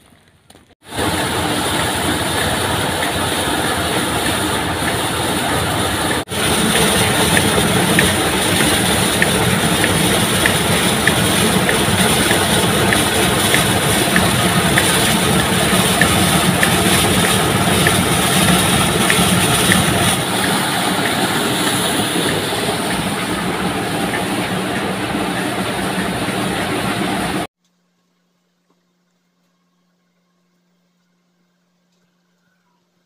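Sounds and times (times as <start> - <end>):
rice mill machinery running: 0.8 - 27.5
light regular ticking: 6.7 - 21.2.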